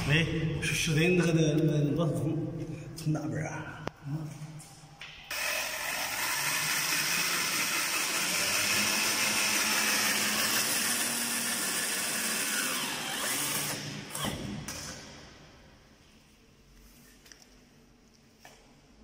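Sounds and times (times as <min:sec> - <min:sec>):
cordless drill running under load: 0:05.3 - 0:14.5
drill motor winding down whine: 0:05.3 - 0:14.5.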